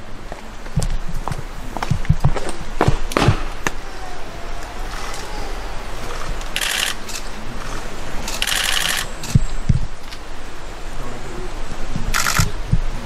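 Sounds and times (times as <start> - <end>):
sharp thump: 1.9 - 3.8
camera shutter clicks: 6.5 - 7.3, 8.3 - 9.4, 12.2 - 12.5.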